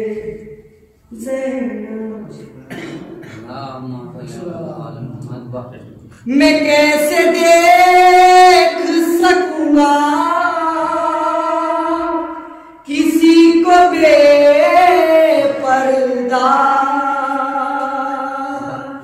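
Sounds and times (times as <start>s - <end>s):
man singing long held notes: 6.2s - 19.0s.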